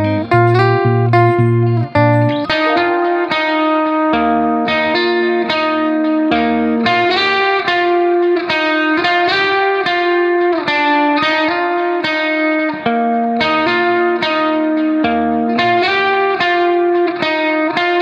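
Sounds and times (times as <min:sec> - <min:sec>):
plucked string melody: 0:00.0 - 0:10.5.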